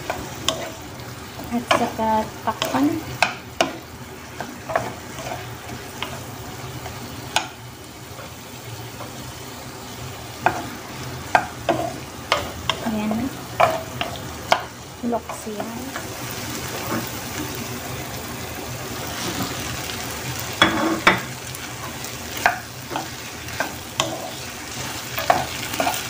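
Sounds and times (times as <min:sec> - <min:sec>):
food sizzling in a pan: 0:00.0 - 0:26.0
wooden spatula scraping a pan: 0:01.4 - 0:07.0, 0:10.4 - 0:14.7, 0:15.3 - 0:17.6, 0:18.9 - 0:19.8, 0:20.6 - 0:26.0.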